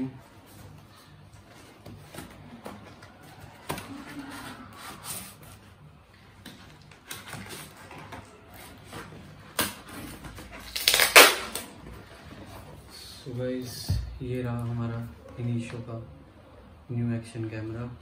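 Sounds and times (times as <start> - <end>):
paper packaging rustling and crinkling: 6.4 - 12.7.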